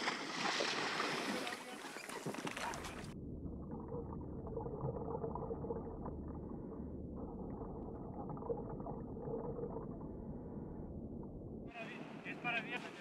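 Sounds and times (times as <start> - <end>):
underwater bubbling of diver breathing: 2.9 - 11.7
faint steady hum: 3.0 - 13.0.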